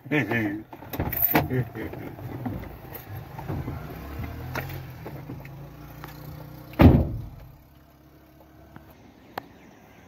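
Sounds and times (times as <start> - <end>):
low car hum: 0.3 - 10.0
car door shutting: 6.8 - 7.5.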